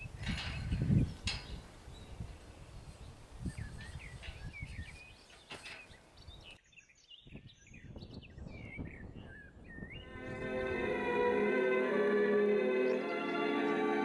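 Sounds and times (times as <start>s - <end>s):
small birds chirping: 0.0s - 10.1s.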